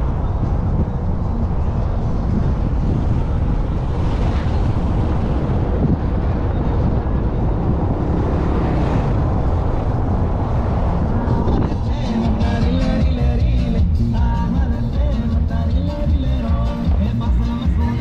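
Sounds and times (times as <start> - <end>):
wind buffeting microphone: 0.0 - 14.0
road and engine noise: 0.0 - 18.0.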